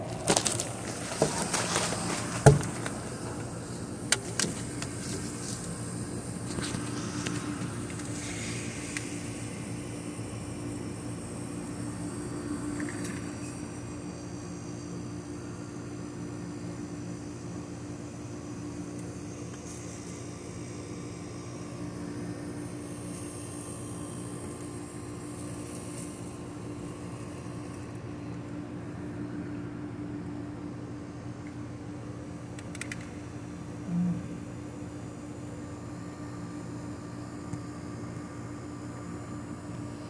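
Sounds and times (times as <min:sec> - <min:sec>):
machine hum: 0:00.0 - 0:40.0.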